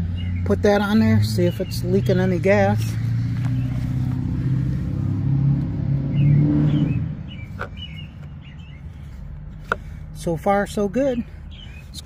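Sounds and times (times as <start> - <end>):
engine running: 0.0 - 12.0.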